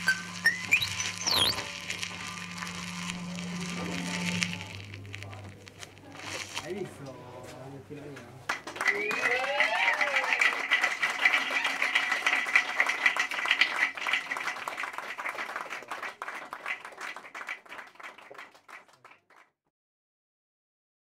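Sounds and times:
steady high tone: 0:00.0 - 0:06.0
audience applauding: 0:08.4 - 0:19.5.

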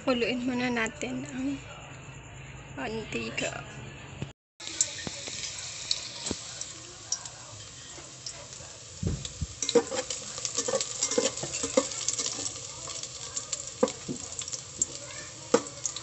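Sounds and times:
garlic sizzling in hot oil: 0:04.6 - 0:16.0
low bump: 0:09.0 - 0:09.5
utensil scraping and knocking pot: 0:09.0 - 0:15.8.

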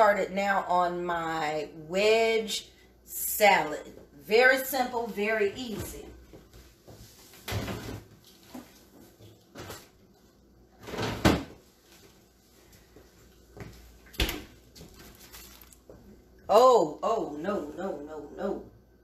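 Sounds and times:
refrigerator door opening: 0:10.8 - 0:11.6.

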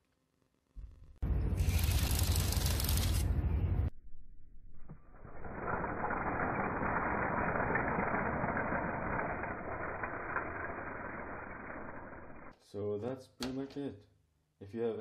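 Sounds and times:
toy tank tracks and gears rattling: 0:05.2 - 0:12.6.

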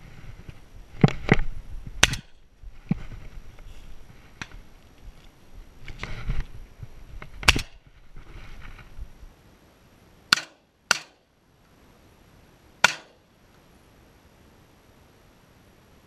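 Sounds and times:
shotgun shots: 0:02.0 - 0:02.4, 0:07.4 - 0:07.8, 0:10.3 - 0:11.2, 0:12.8 - 0:13.2.

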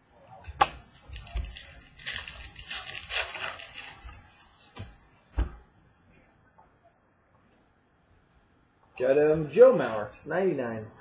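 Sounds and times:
foil wrapper tearing and crinkling: 0:01.1 - 0:04.4.

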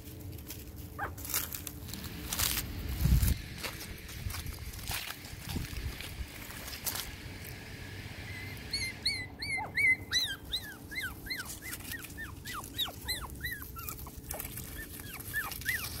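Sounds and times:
puppies yipping: 0:01.0 - 0:01.4, 0:08.2 - 0:16.0.

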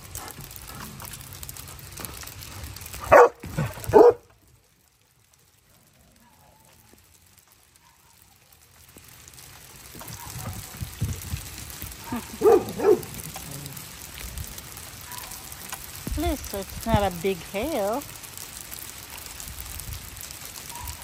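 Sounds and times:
hail on a wooden deck: 0:00.0 - 0:21.0
dog barking: 0:03.1 - 0:04.3, 0:07.8 - 0:08.2, 0:12.1 - 0:13.2, 0:15.0 - 0:15.4.

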